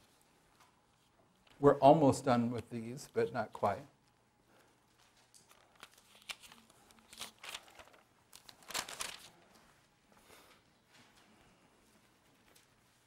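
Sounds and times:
paper pages rustling: 3.6 - 13.0.

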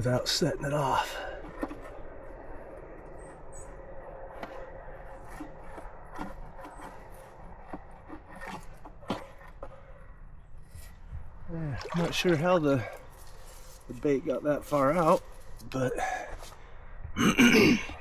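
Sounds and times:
creek water running: 11.4 - 16.1.

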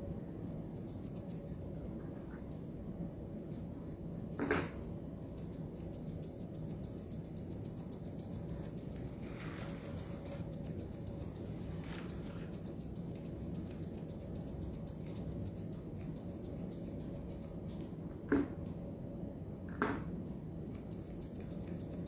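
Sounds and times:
shears snipping hair: 0.4 - 1.6, 5.2 - 17.9, 20.2 - 22.0.

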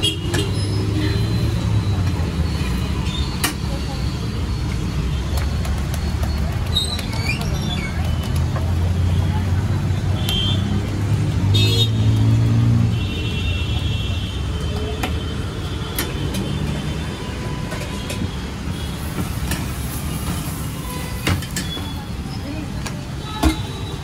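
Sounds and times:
road traffic rumble: 0.0 - 24.0.

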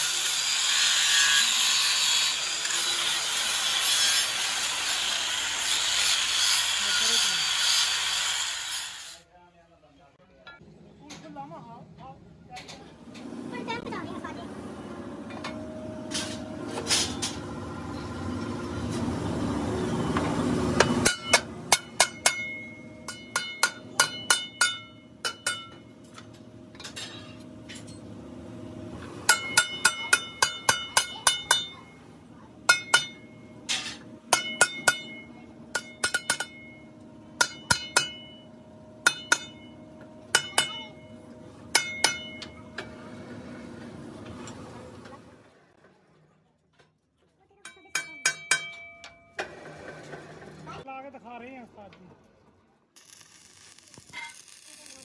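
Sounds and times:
metal strikes on steel wheel rim: 20.8 - 25.8, 29.3 - 31.8, 32.7 - 36.8, 37.4 - 38.4, 39.0 - 39.7, 41.7 - 42.6, 48.0 - 49.4.

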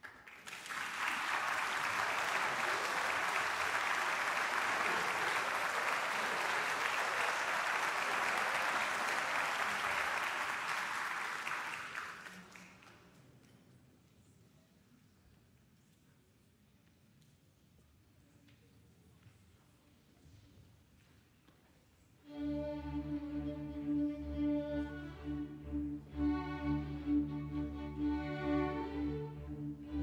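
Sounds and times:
audience applauding: 0.0 - 13.1.

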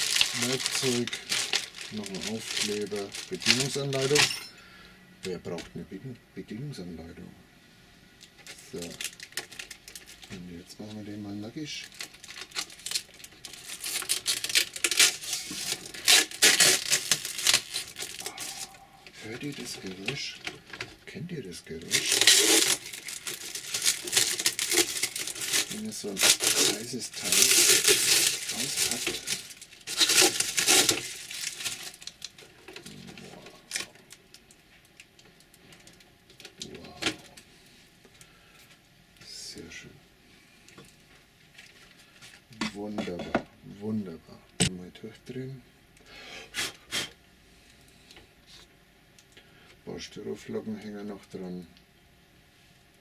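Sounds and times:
plastic film crinkling: 0.0 - 4.4, 8.2 - 20.9, 21.6 - 37.5.

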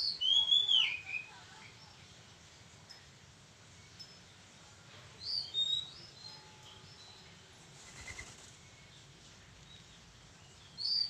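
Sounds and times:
faint steady background noise: 0.0 - 11.0
small bird chirping: 5.2 - 7.3, 7.9 - 11.0.

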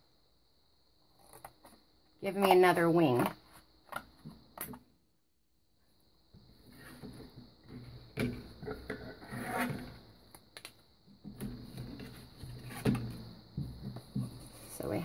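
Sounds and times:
cardboard scraping on a mat: 9.0 - 10.0.

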